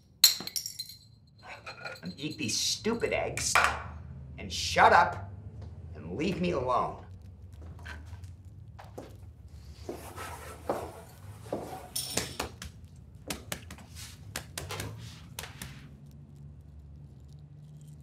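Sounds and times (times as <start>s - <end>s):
bar stool pulled out: 9.8s - 12.4s
egg shell cracking and peeling: 15.9s - 18.0s.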